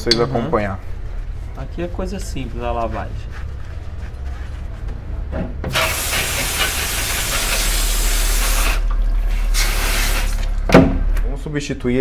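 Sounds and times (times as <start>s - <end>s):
air blow gun hissing: 5.7s - 8.8s.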